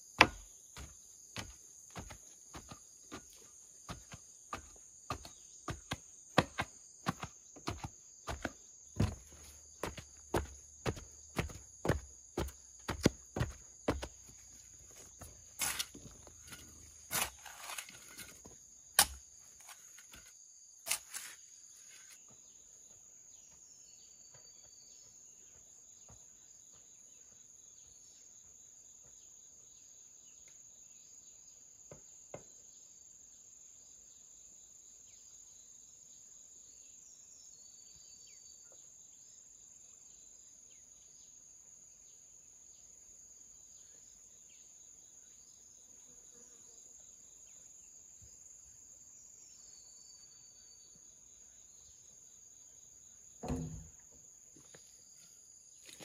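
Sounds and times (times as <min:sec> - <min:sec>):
tool thudding wet soil: 0:00.2 - 0:03.3, 0:03.9 - 0:14.2, 0:14.9 - 0:20.3, 0:53.4 - 0:54.0.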